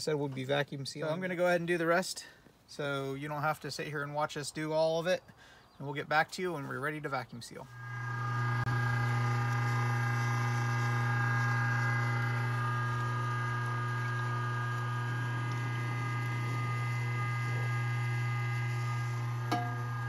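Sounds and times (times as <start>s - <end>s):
electric meat grinder running: 7.7s - 20.0s.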